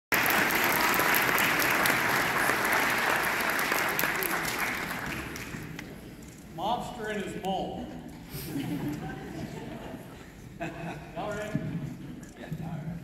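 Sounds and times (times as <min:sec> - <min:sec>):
audience applauding: 0:00.1 - 0:06.0.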